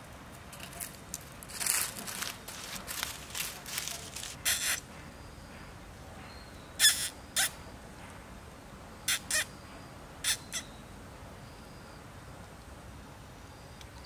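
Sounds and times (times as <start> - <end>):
dry leaves rustling under steps: 0.0 - 4.8
young monkey harsh calls: 4.4 - 4.9, 6.8 - 7.6, 9.1 - 9.6, 10.2 - 10.7.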